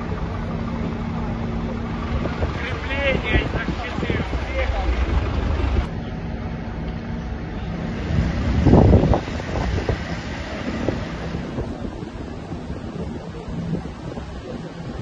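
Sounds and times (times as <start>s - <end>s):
wind buffeting microphone: 0.0s - 6.0s, 7.7s - 15.0s
low vehicle engine hum: 0.0s - 15.0s.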